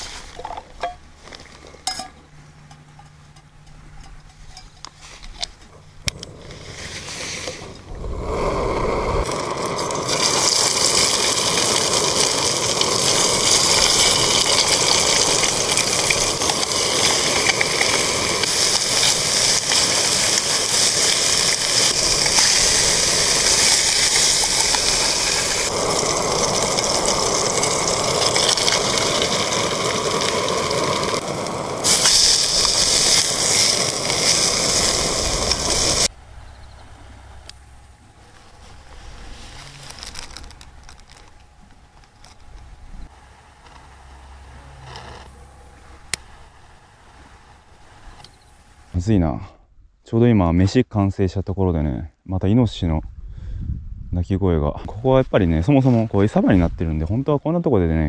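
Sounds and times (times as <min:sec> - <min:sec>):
gas stove burning hiss: 0:03.6 - 0:36.1, 0:36.8 - 0:49.1.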